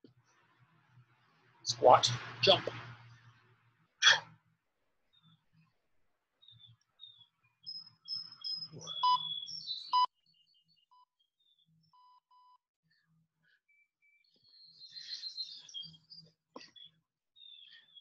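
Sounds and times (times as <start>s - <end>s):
birds chirping: 6.4s - 12.1s, 13.5s - 18.0s
short electronic beeps: 8.7s - 10.1s.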